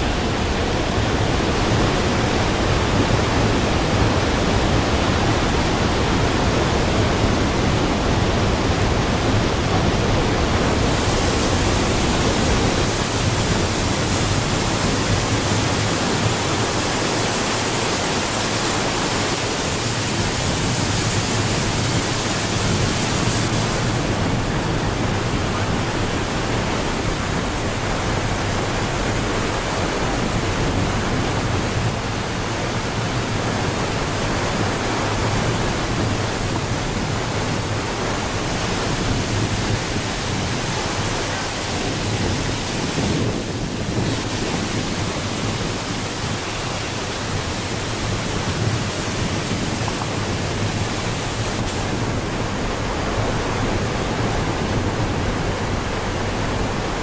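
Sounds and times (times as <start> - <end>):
waterfall rushing: 0.0 - 57.0.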